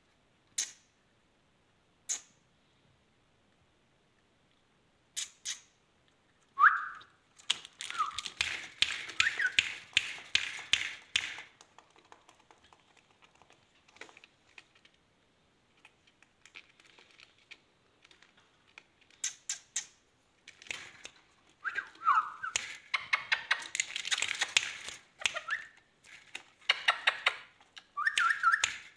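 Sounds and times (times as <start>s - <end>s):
parakeet whistled chirps: 6.6s - 7.1s, 9.2s - 9.7s, 21.6s - 22.6s, 28.0s - 28.8s
wire cage clicks and rattles: 7.4s - 14.8s, 22.4s - 27.4s.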